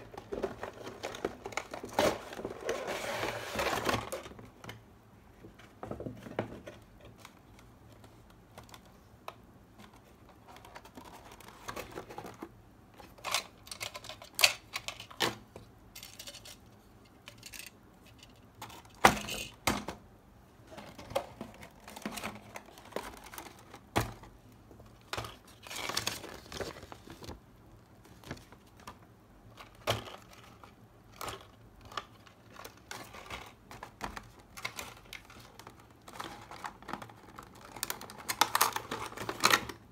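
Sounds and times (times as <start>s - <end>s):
packaging rustling: 0.0s - 4.4s, 20.7s - 27.4s.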